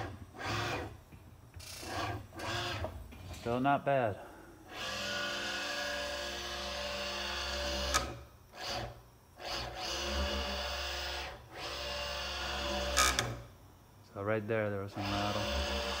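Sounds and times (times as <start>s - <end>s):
servo motor whine: 4.7s - 13.4s, 15.0s - 16.0s.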